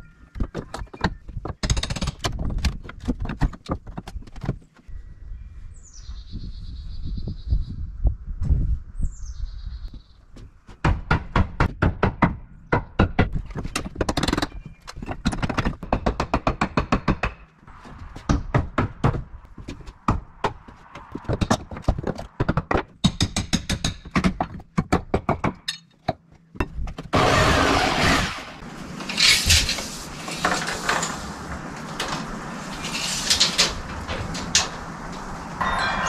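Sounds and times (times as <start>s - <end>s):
hammer striking wood: 10.8s - 13.4s.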